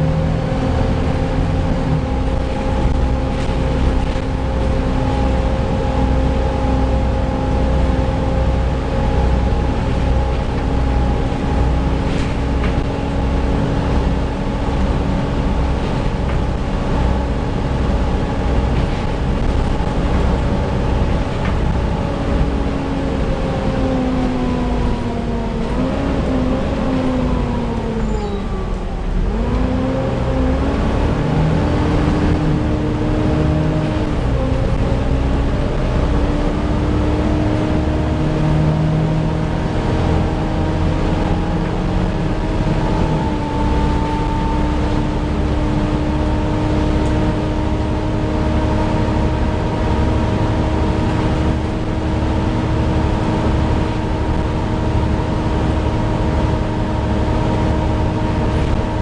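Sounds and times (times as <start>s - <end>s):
cooling fan whining: 0.0s - 59.0s
engine and road rumble: 0.0s - 59.0s.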